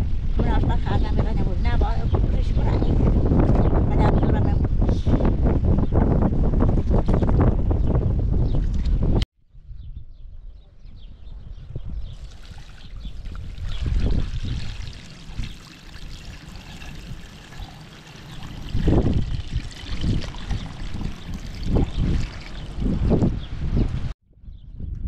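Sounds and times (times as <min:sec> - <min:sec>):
water pouring and trickling: 0:12.1 - 0:23.4.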